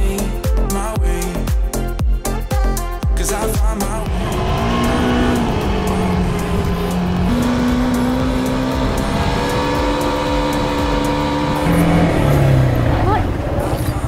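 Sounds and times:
quad bike engine revving: 0:04.0 - 0:14.0.

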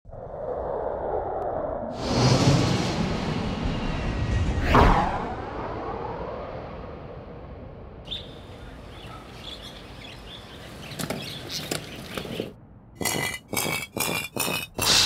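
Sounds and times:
birds chirping: 0:08.1 - 0:13.3.

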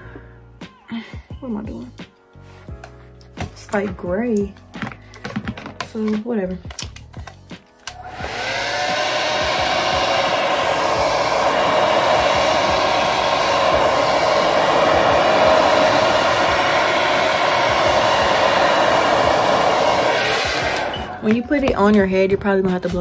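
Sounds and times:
hair dryer blowing: 0:07.9 - 0:22.2.

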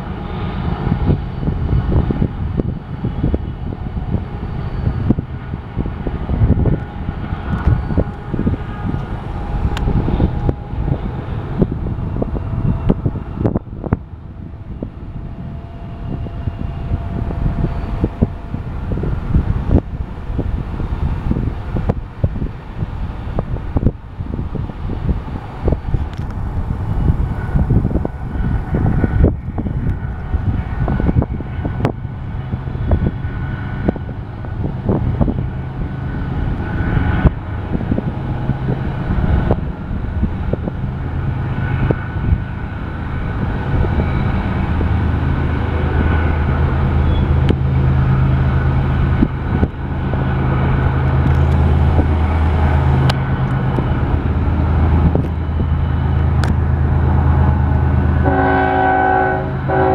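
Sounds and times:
diesel locomotive rumble: 0:00.0 - 0:59.9
wind buffeting microphone: 0:00.0 - 0:59.9.

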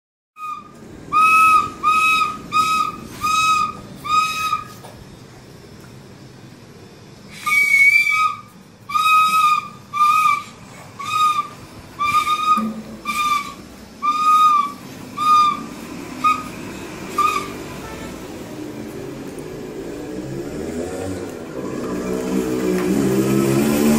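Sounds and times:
toy flute toots: 0:00.4 - 0:04.9, 0:07.3 - 0:18.2.

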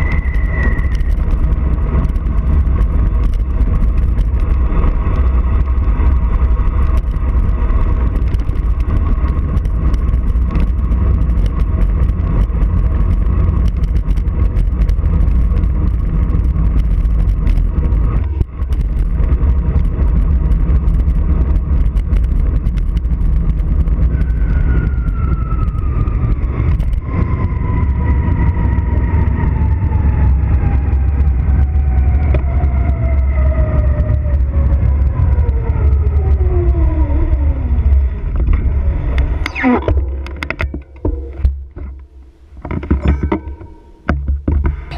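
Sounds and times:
wind buffeting microphone: 0:00.0 - 0:44.9
thin whine sliding down: 0:38.6 - 0:44.1.

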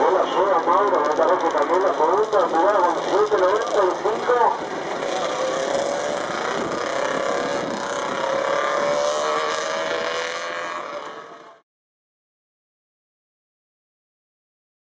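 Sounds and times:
engine running: 0:00.0 - 0:11.6.

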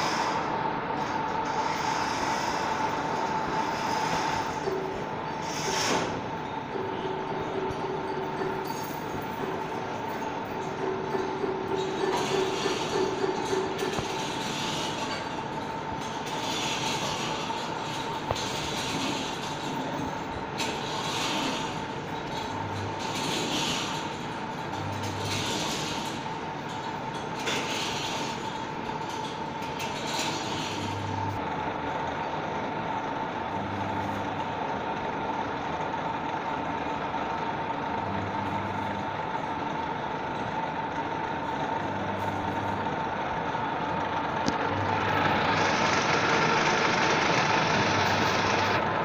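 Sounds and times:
milling machine whine: 0:00.0 - 0:49.0.

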